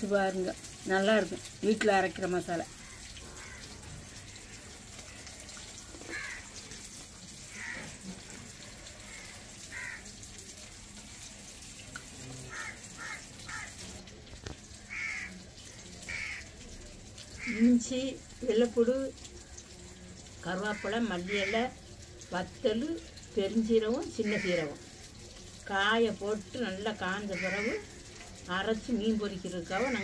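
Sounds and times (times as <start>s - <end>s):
crows cawing: 2.7s - 6.8s, 7.4s - 10.2s, 12.4s - 13.9s, 14.8s - 16.5s, 17.3s - 17.7s, 20.7s - 21.7s, 24.2s - 24.8s, 27.3s - 28.0s, 29.8s - 30.0s.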